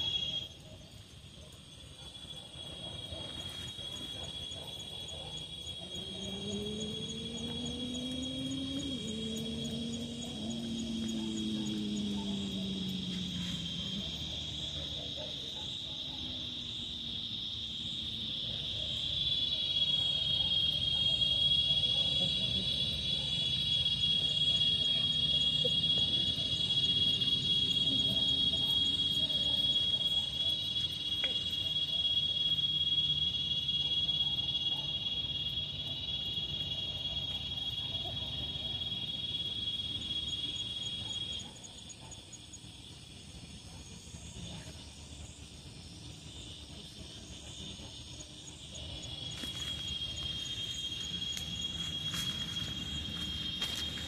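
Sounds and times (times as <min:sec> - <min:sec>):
insect high-pitched trill: 0:00.0 - 0:54.0.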